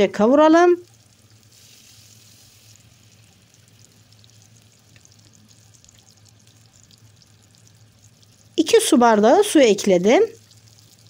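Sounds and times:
tomato paste sizzling in pan: 0:00.0 - 0:11.0.

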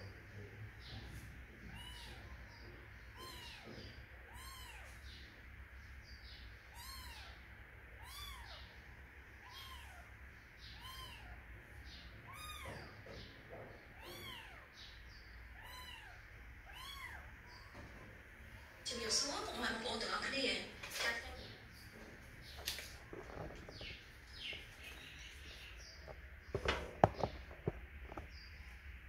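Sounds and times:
kitten mewing: 0:08.0 - 0:08.7, 0:10.7 - 0:11.4, 0:15.5 - 0:17.3.

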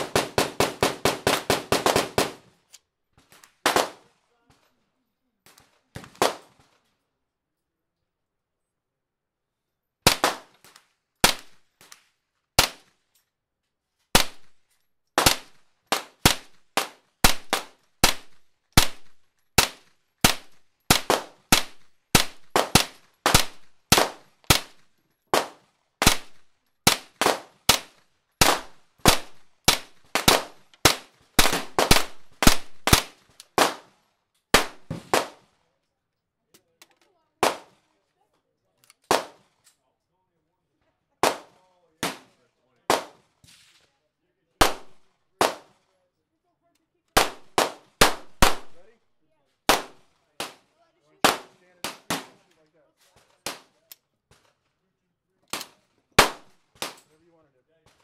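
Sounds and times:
gunshots: 0:00.0 - 0:02.5, 0:03.3 - 0:04.1, 0:05.9 - 0:06.7, 0:10.0 - 0:12.0, 0:14.1 - 0:14.6, 0:15.2 - 0:35.5, 0:37.4 - 0:37.8, 0:39.1 - 0:39.6, 0:41.2 - 0:43.8, 0:44.6 - 0:45.8, 0:47.2 - 0:48.9, 0:49.7 - 0:52.6, 0:55.5 - 0:57.1.

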